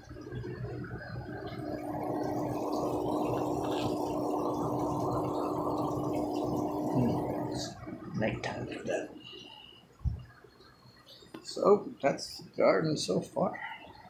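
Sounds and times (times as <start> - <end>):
water gurgling and splashing: 0.0 - 9.3
steady low hum: 0.0 - 13.8.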